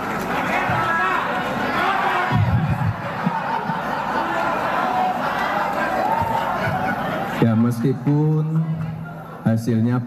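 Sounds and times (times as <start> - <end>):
audience cheering and calling out: 0.0 - 8.0
loud shouts: 0.3 - 7.4.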